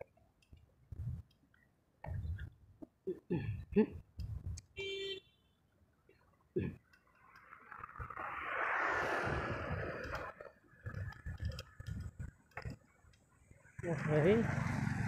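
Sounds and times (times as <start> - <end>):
vehicle passing close: 7.6 - 10.5, 13.9 - 15.0.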